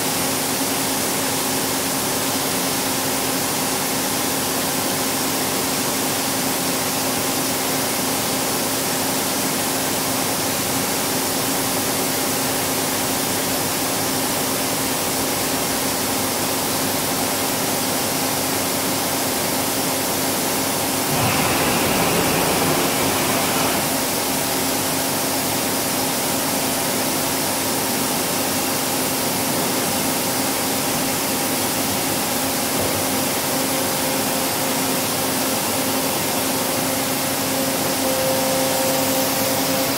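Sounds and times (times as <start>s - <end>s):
machining center humming: 20.7s - 25.2s
loud rushing sound: 20.8s - 24.9s.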